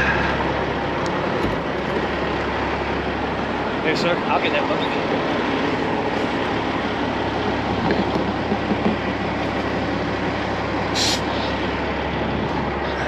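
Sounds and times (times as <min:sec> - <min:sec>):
diesel engine droning: 0:00.0 - 0:13.0
rushing noise: 0:00.0 - 0:13.0
short hiss: 0:11.0 - 0:11.5.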